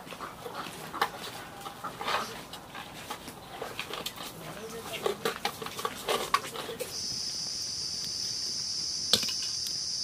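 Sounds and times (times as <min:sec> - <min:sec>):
high insect drone: 0:06.9 - 0:10.0.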